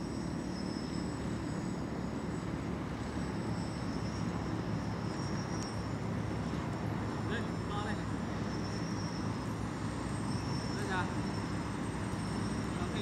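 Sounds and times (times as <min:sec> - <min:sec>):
quadcopter motors buzzing: 0:00.0 - 0:13.0.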